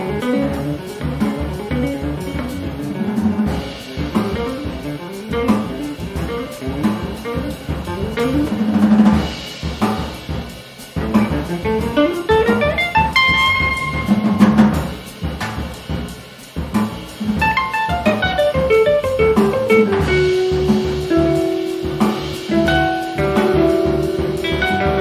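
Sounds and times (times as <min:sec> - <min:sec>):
drum kit: 0:00.0 - 0:25.0
electric guitar: 0:11.1 - 0:14.7, 0:17.4 - 0:25.0.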